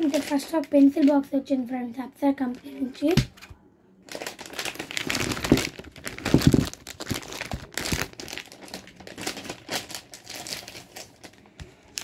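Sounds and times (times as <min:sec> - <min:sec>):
plastic wrapping crinkling: 0:00.0 - 0:01.2, 0:04.0 - 0:12.0.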